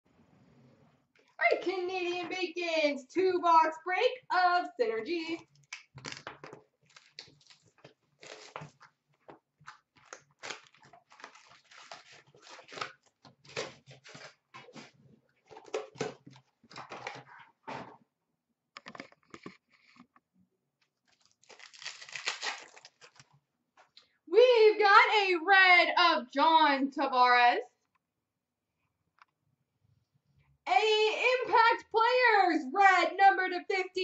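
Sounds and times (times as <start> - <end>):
wrapper crinkling and ripping: 5.6 - 8.9, 9.6 - 14.9, 21.0 - 23.4.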